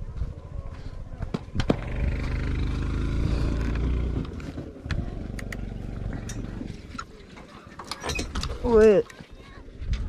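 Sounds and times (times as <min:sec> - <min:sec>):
motorcycle engine running: 0:01.7 - 0:06.7.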